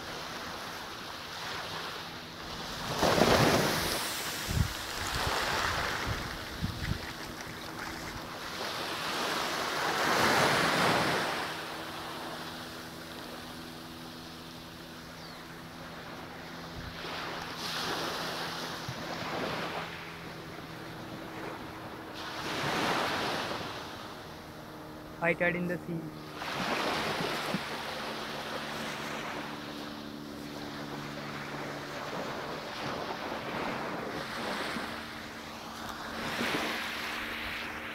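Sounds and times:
waves washing onto sand: 0.0s - 15.0s, 15.6s - 37.9s
faint steady hum: 0.0s - 37.9s
wind buffeting microphone: 3.1s - 8.4s.

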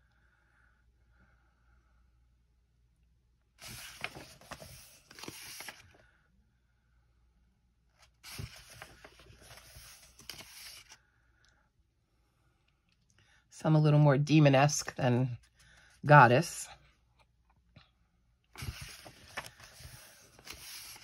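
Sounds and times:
paper pages turning and rustling: 3.6s - 6.0s, 8.0s - 11.0s, 18.6s - 21.0s.

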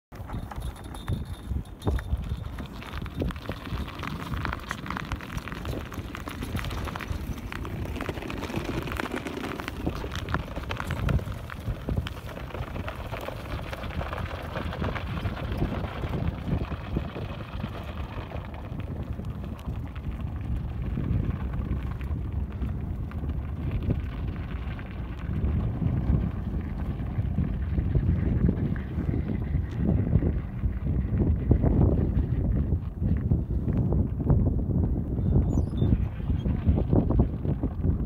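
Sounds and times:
crackle of small clicks: 0.1s - 27.3s
wind rumbling on microphone: 0.1s - 38.0s.

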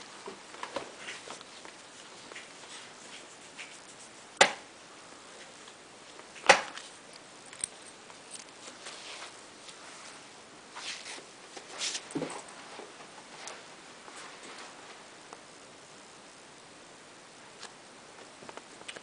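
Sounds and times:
dog rustling and shuffling: 0.1s - 4.4s, 8.0s - 15.1s.

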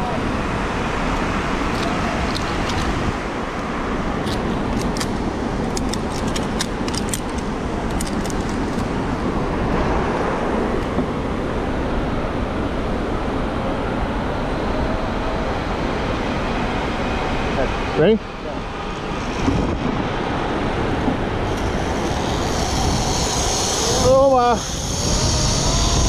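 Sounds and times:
waterfall roaring: 20.4s - 26.0s.

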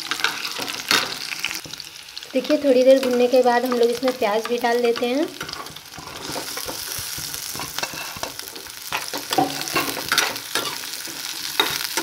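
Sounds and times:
onion sizzling in oil: 0.0s - 12.0s
spatula scraping a pan: 4.5s - 12.0s.

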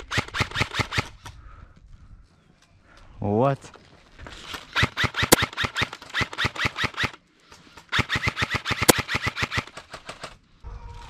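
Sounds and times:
airsoft rifle rapid fire: 0.0s - 1.2s, 4.7s - 10.4s.

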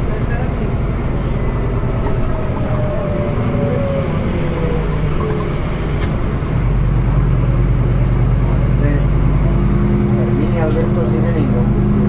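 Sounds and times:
falling whine: 0.0s - 8.4s
bus diesel engine drone: 0.0s - 12.0s.

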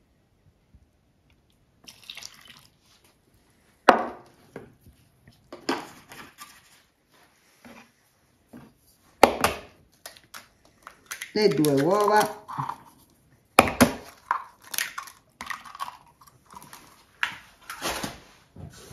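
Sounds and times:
milk pouring into a bowl: 1.8s - 3.0s.

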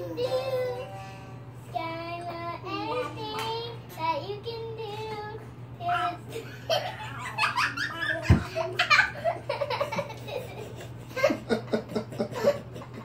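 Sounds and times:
steady low hum: 0.0s - 13.0s
child laughing: 5.9s - 13.0s.

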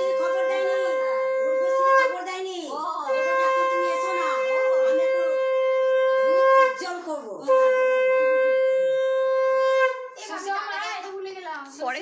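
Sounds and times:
voices: 0.0s - 7.8s
conch shell blasts: 0.0s - 10.2s.

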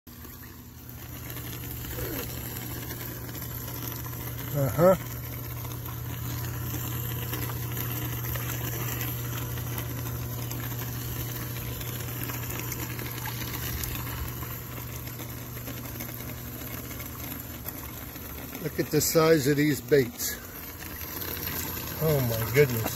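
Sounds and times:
constant low hum: 0.1s - 22.9s
water bubbling and churning: 0.1s - 22.9s.

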